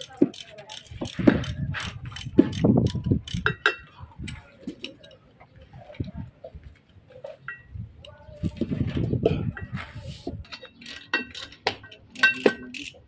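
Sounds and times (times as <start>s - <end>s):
ratchet wrench clicking: 0.0s - 3.8s, 10.8s - 13.0s
metal tools clinking: 10.5s - 13.0s.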